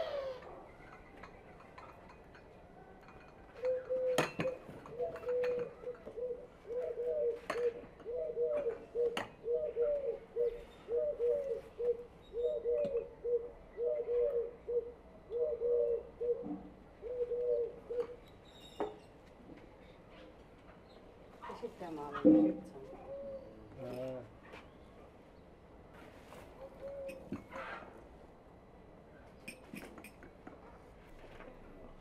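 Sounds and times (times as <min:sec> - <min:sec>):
dove cooing: 0:00.0 - 0:00.7, 0:03.6 - 0:18.2, 0:22.7 - 0:23.7, 0:26.6 - 0:27.8.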